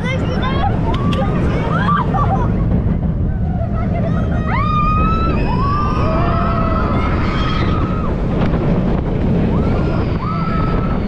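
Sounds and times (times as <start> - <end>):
wind rushing across microphone: 0.0 - 11.0
riders screaming: 4.5 - 8.2, 9.5 - 11.0.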